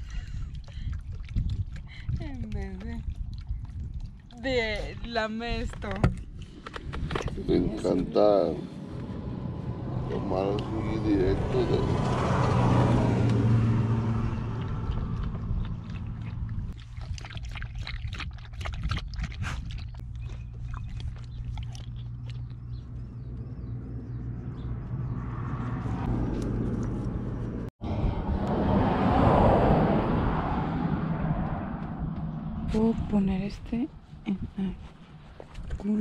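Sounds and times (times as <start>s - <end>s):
dog lapping water: 0.0s - 4.4s, 14.4s - 23.1s.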